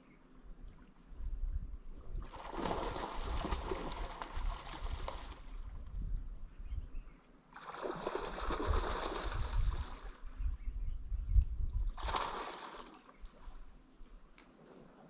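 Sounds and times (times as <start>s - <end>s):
wind buffeting microphone: 1.2s - 7.1s, 8.1s - 12.4s.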